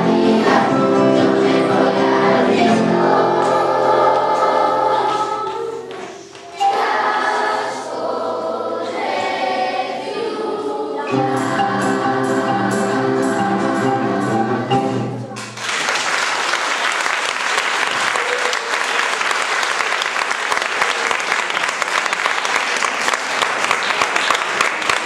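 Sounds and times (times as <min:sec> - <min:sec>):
acoustic guitar: 0:00.0 - 0:06.7, 0:11.1 - 0:15.6
children's choir singing: 0:00.0 - 0:15.6.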